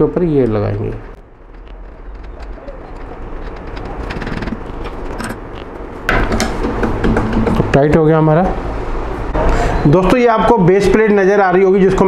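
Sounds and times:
bird cooing: 2.4 - 3.0.

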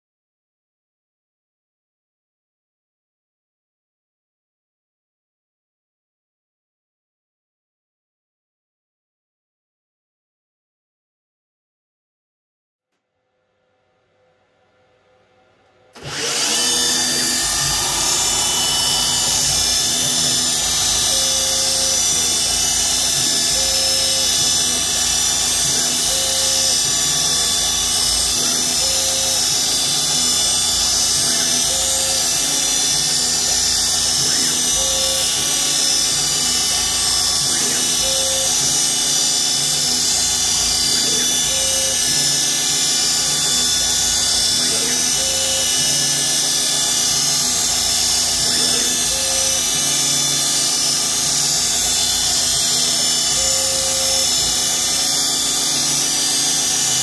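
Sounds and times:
spindle high whine: 14.0 - 57.0
short humming tones: 16.0 - 57.0.

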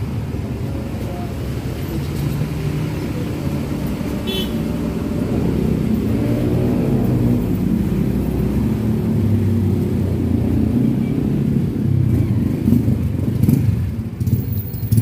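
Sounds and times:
vehicle engine revving: 2.7 - 10.7.

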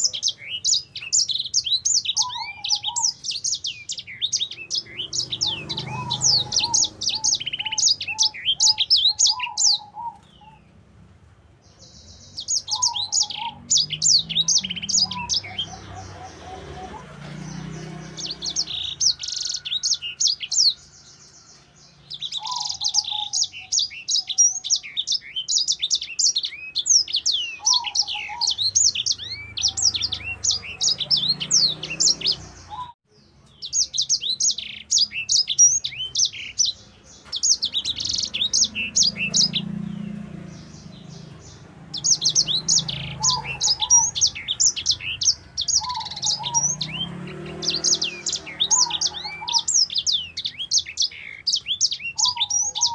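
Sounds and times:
finch singing chattering song: 0.0 - 10.8, 11.6 - 52.9.

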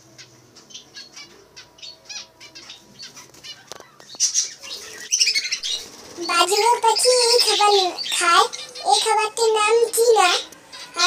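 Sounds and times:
budgerigars chirping: 0.1 - 11.0
wings fluttering: 3.0 - 8.0.

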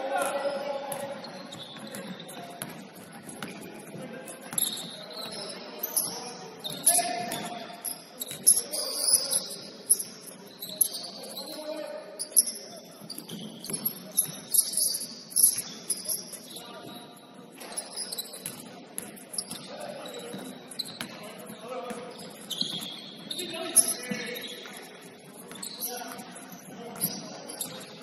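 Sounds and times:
sneakers squeaking on court: 0.2 - 28.0
basketball bouncing: 1.8 - 3.6.

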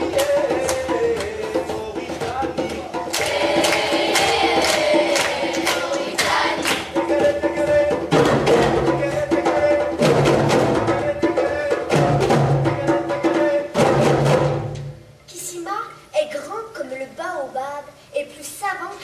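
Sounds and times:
deeper drum beat: 0.0 - 14.8
hand drums playing: 0.0 - 15.0
children singing: 3.2 - 7.9.

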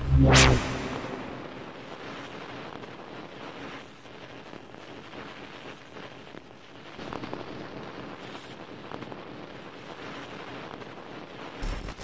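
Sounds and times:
boom: 0.0 - 2.2
rushing wind-like noise: 0.0 - 5.6
soft crackles: 1.6 - 12.0.

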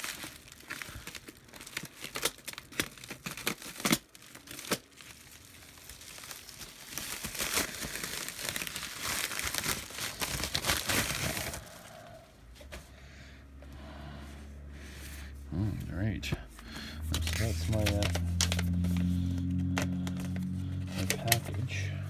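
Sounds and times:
packaging being torn and crinkled: 0.0 - 12.0, 17.1 - 21.8.

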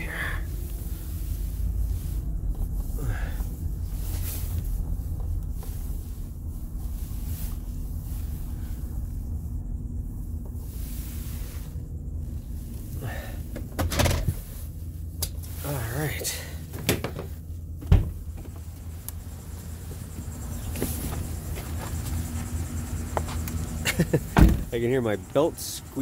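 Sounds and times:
van engine rumble: 0.0 - 26.0.

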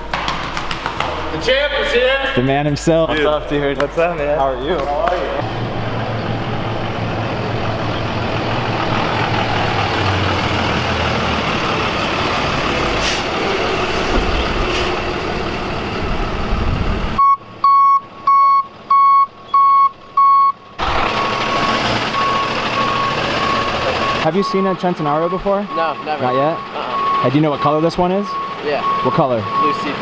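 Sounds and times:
truck diesel engine running: 0.0 - 30.0
reversing alarm beeping: 17.2 - 30.0.

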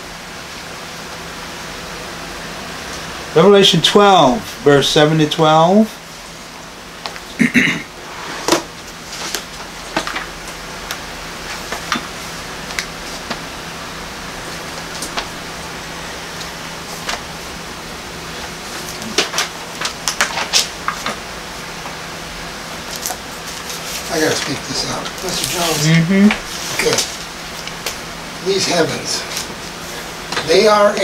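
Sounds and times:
steady room hum: 0.0 - 31.0
book pages turning: 18.7 - 21.2.

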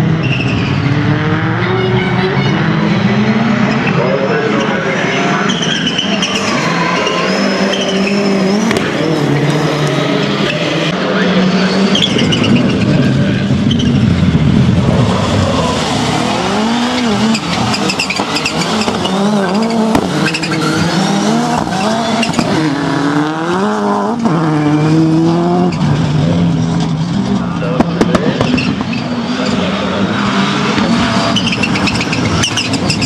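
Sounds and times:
race car engines revving: 0.0 - 33.0.

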